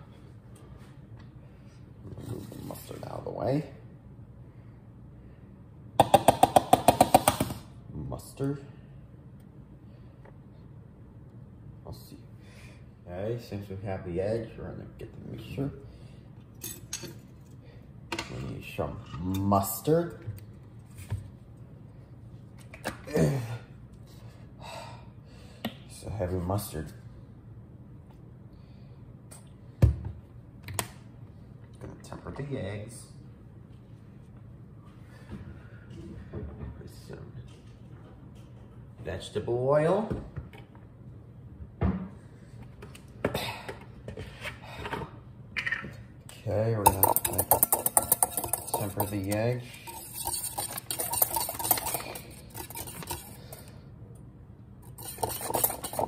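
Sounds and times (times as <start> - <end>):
kitchen items clinking: 46.8 - 53.7, 54.9 - 56.0.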